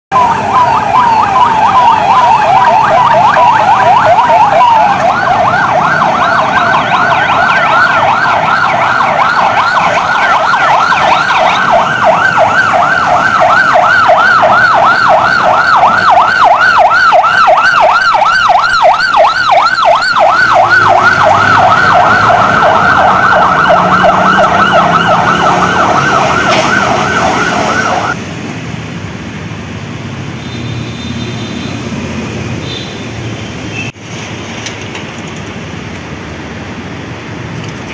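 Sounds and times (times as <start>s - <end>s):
ambulance siren: 0.1s - 28.2s.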